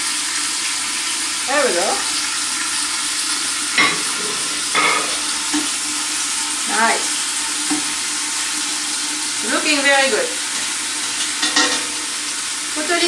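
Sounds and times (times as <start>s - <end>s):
food sizzling in a pot: 0.0s - 13.0s
spatula stirring and scraping: 3.8s - 5.7s.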